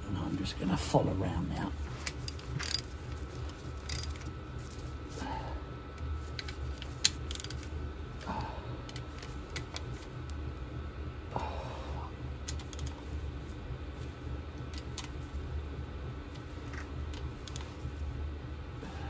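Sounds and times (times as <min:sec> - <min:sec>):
steady low hum: 0:00.0 - 0:19.0
socket ratchet clicking: 0:02.1 - 0:02.9, 0:03.8 - 0:04.3, 0:06.4 - 0:07.7, 0:12.4 - 0:13.0.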